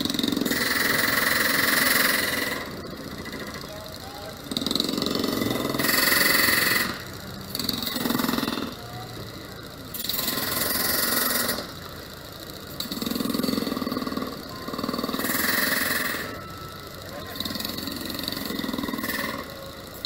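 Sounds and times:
hissing grind on rail: 0.0s - 20.0s
power tool engine revving: 0.0s - 20.0s.

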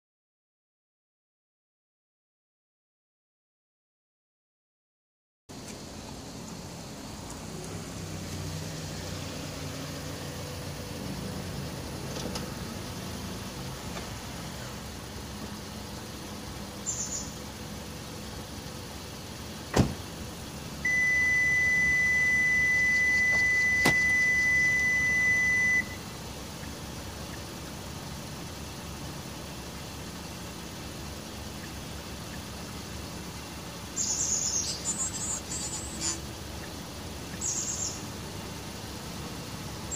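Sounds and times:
car low hum: 5.5s - 39.9s
short high chirps: 20.9s - 26.0s
steady high electronic beep: 20.9s - 26.0s.

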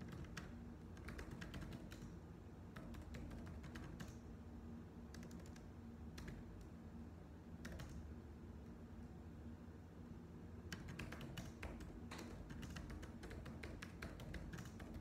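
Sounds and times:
keyboard typing: 0.0s - 2.1s, 2.7s - 4.2s, 5.1s - 6.6s, 7.6s - 8.0s, 10.7s - 15.0s
faint low hum: 0.0s - 15.0s.

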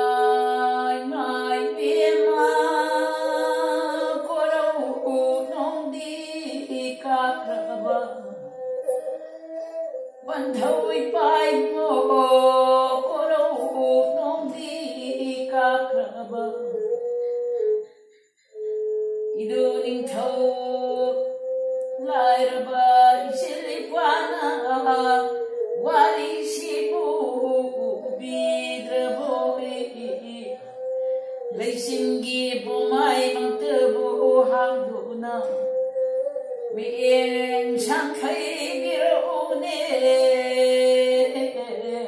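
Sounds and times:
woman singing: 0.0s - 17.9s, 18.6s - 42.0s.

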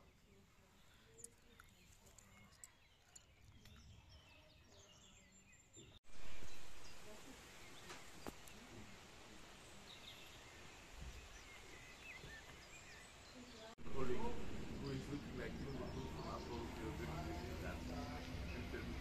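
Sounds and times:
birds chirping: 0.0s - 19.0s
loud rush of outdoor noise: 6.1s - 19.0s.

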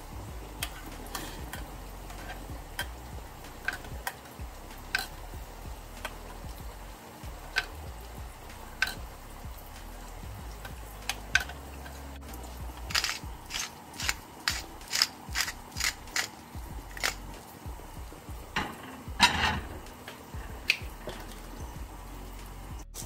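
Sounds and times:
metal spoon scraping saucepan: 0.6s - 3.0s, 4.9s - 5.2s.

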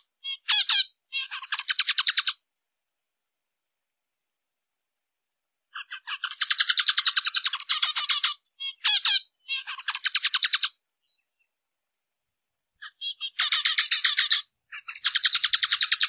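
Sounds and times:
finch chattering chirps: 0.2s - 2.4s, 5.8s - 11.5s, 12.8s - 16.0s.

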